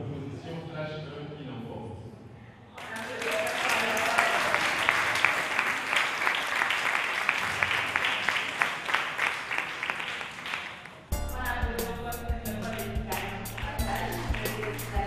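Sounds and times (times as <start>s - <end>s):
people clapping: 2.8s - 11.2s, 12.6s - 15.0s.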